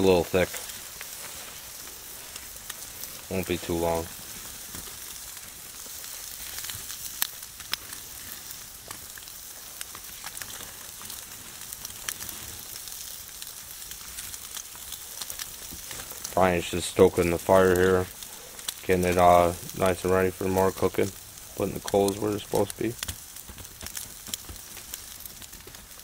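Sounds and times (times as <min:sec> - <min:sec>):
steaks sizzling on a grill: 0:00.0 - 0:26.0
fat popping: 0:21.1 - 0:26.0.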